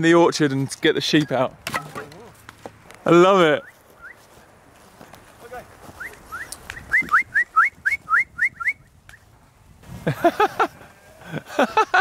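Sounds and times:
person whistling short rising whistles: 6.0s - 9.2s.

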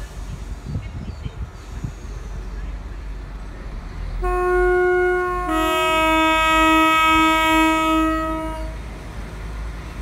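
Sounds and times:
two-tone train horn: 4.2s - 8.8s.

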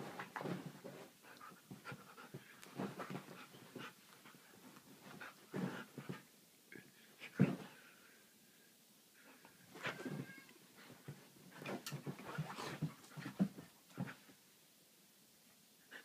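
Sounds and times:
paws scuffling on couch: 0.0s - 6.2s, 9.8s - 14.3s
dog panting: 1.2s - 4.5s.

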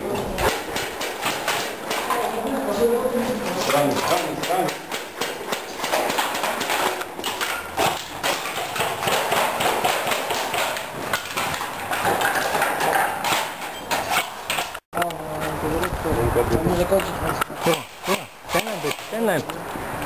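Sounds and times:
airsoft rifles firing: 0.3s - 2.4s, 3.3s - 14.8s, 17.6s - 19.3s.

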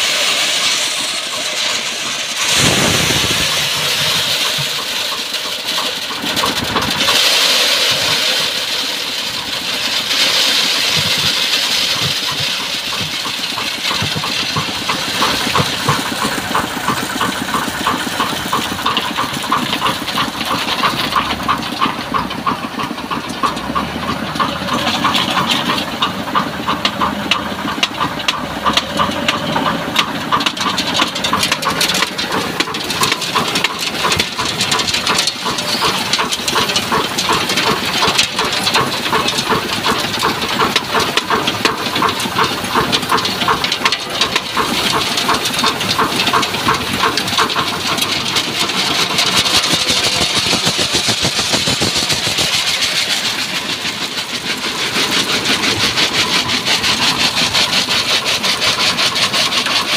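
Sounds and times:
water spraying and rushing: 0.0s - 11.8s, 31.3s - 59.9s
vibrating screen rattling: 47.9s - 54.0s.

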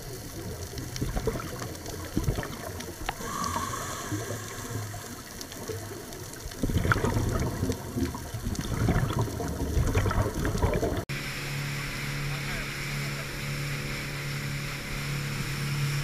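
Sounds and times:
exhaled bubbles underwater: 0.0s - 11.1s
regulator hiss: 3.1s - 6.1s.

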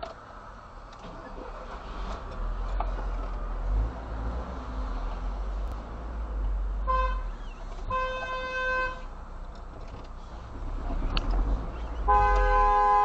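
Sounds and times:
city traffic rumble: 0.0s - 13.0s
car horn honking: 6.8s - 9.2s, 12.0s - 13.0s.

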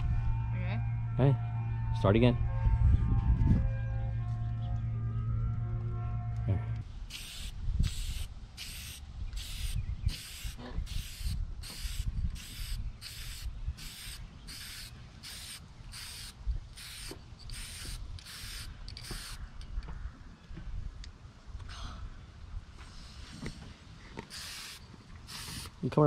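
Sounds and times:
spray paint can hissing: 7.1s - 19.4s, 24.3s - 25.8s.

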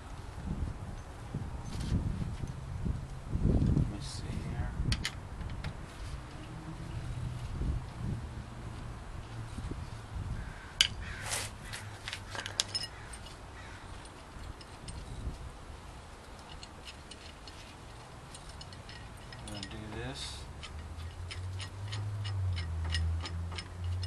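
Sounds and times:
screwdriver scraping metal hub: 16.4s - 24.0s.

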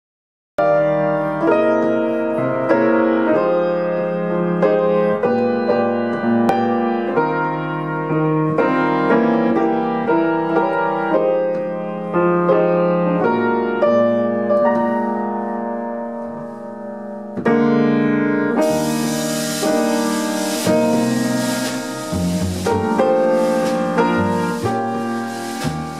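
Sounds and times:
grand piano chords: 0.6s - 25.9s
drum kit cymbal hiss: 18.6s - 25.9s.

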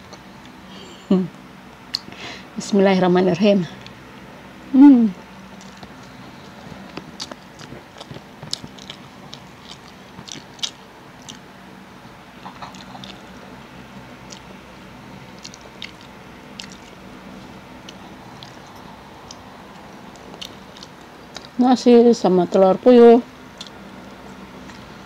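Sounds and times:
low hum: 0.0s - 25.0s
person chewing food: 5.5s - 11.6s, 12.4s - 21.6s, 23.4s - 25.0s.

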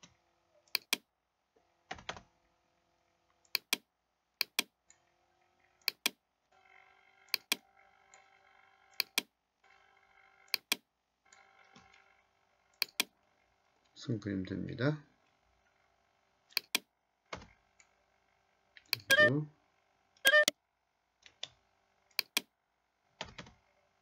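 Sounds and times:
computer mouse clicking: 0.7s - 1.0s, 3.5s - 3.8s, 4.4s - 4.7s, 5.8s - 6.2s, 7.3s - 8.3s, 8.9s - 9.3s, 10.5s - 11.9s, 12.8s - 13.1s, 16.5s - 17.5s, 21.3s - 22.5s.

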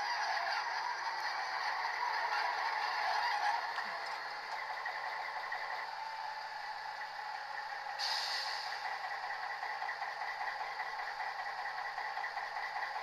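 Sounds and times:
thin buzzy engine idle sound: 0.0s - 13.0s
bright hiss: 8.0s - 8.8s.

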